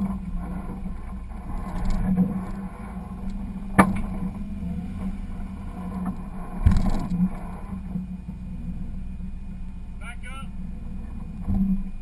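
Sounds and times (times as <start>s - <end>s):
vehicle jolting over rocks: 0.0s - 7.9s
car engine running low: 0.0s - 12.0s.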